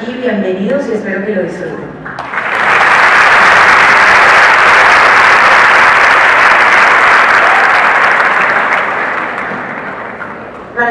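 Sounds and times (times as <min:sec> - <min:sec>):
audience applauding: 0:02.2 - 0:10.6.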